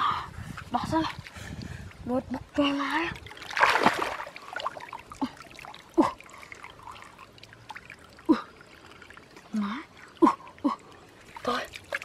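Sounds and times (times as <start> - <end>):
muddy water splashing: 0.4 - 12.0.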